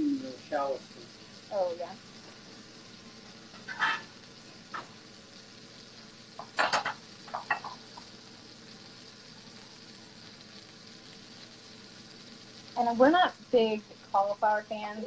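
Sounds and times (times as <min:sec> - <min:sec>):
food sizzling in a frying pan: 0:00.0 - 0:15.0.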